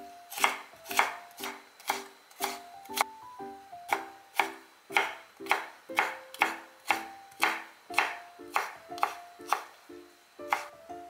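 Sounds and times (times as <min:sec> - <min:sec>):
knife chopping on wooden board: 0:00.3 - 0:03.0, 0:03.9 - 0:09.7, 0:10.5 - 0:10.7.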